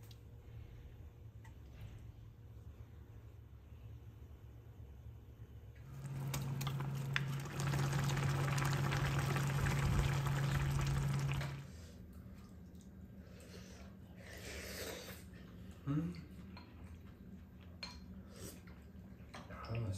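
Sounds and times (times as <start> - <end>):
steady low hum: 0.1 - 14.2
pan bubbling on stove: 5.9 - 11.8.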